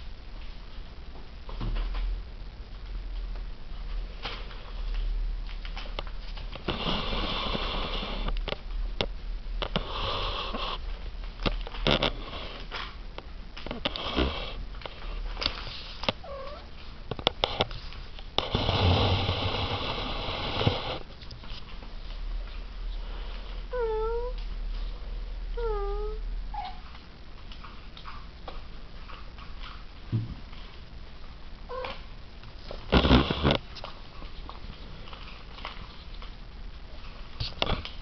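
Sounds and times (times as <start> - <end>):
cats making rasping noises: 9.6 - 11.0, 13.6 - 21.1.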